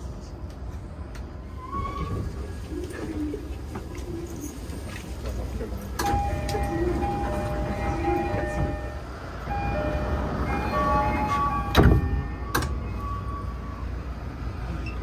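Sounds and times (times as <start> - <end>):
train car low hum: 0.0 - 15.0
electronic door chime: 6.0 - 12.5
sliding doors shutting thud: 11.0 - 12.8.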